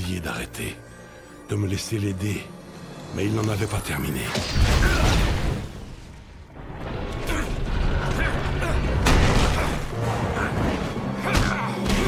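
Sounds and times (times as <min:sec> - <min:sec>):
film score music: 0:00.0 - 0:12.0
explosion and fire rumble: 0:04.5 - 0:11.3.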